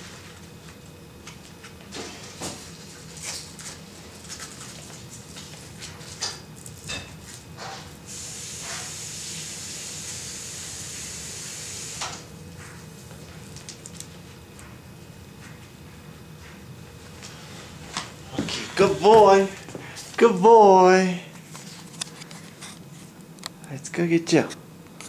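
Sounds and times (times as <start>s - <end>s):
steady hiss: 8.0s - 12.3s.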